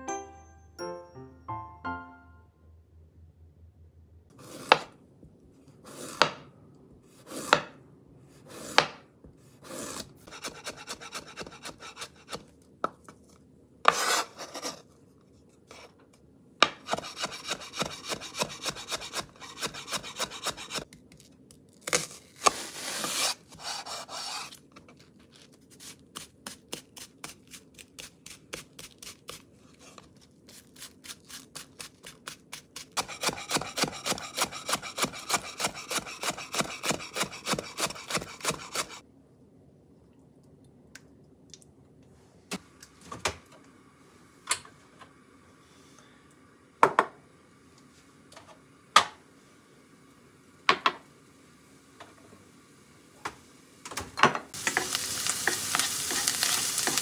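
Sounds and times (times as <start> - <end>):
rapid knife chopping: 10.2 - 12.4, 16.8 - 20.8, 30.8 - 39.0
knife slicing on cutting board: 13.9 - 14.8, 30.5 - 39.0.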